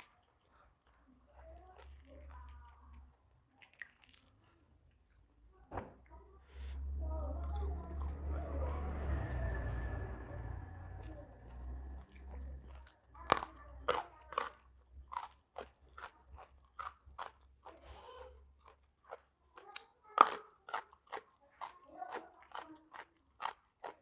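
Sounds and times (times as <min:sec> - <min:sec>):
crisp chewing crunches: 0:00.0 - 0:05.2, 0:11.5 - 0:24.0.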